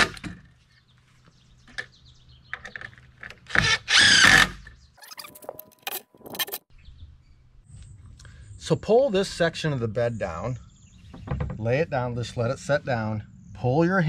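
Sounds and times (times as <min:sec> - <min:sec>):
cordless drill driving screw: 0:03.5 - 0:04.6.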